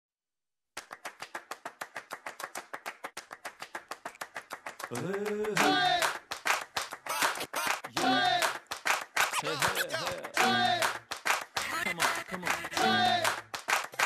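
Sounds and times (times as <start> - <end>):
person speaking: 9.4 - 10.8, 11.6 - 13.2.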